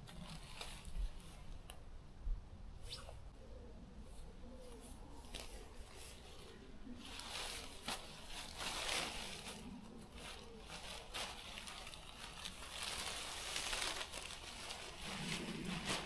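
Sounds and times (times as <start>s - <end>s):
tent rustling: 0.0s - 1.7s, 4.2s - 16.0s.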